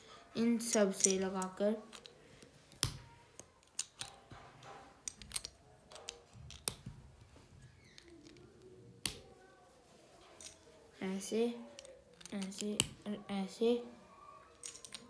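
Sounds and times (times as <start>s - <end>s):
plastic bricks clicking: 1.0s - 4.2s, 5.0s - 6.9s, 11.8s - 13.0s, 14.6s - 15.0s.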